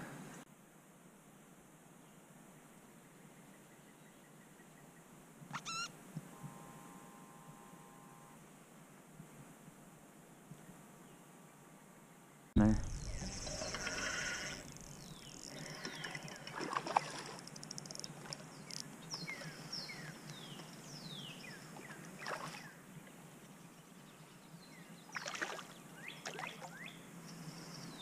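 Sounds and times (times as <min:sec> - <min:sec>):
water splashing: 0:12.8 - 0:18.8, 0:21.8 - 0:22.6, 0:25.1 - 0:26.8.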